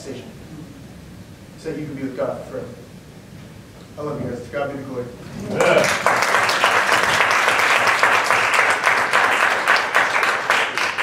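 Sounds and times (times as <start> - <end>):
congregation applauding: 5.3 - 11.0.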